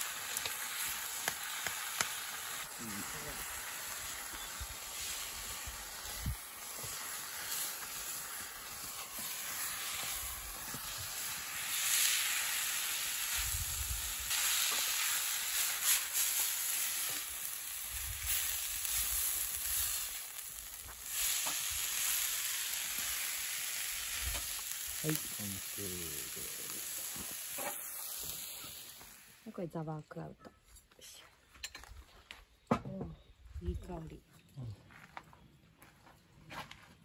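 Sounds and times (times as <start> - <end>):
rice and meat sizzling in pan: 0.0 - 29.5.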